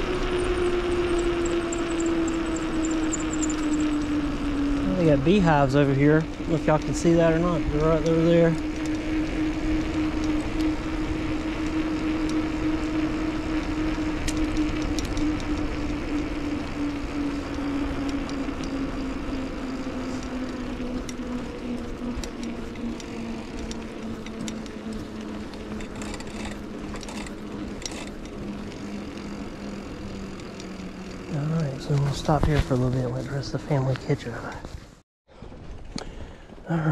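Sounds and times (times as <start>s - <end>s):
wind rush on microphone: 0.0s - 29.1s
steady bicycle hum: 0.0s - 36.9s.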